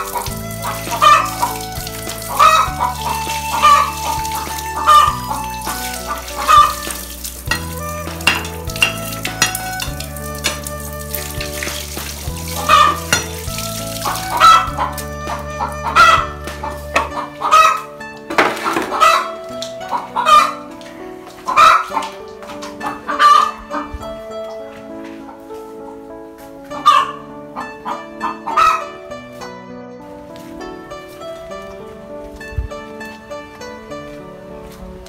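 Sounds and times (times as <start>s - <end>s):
chickens clucking: 0.0s - 1.6s, 2.3s - 5.5s, 6.1s - 9.6s, 11.6s - 13.4s, 14.0s - 20.7s, 21.4s - 25.6s, 26.7s - 28.9s
music with low held notes: 0.0s - 35.0s.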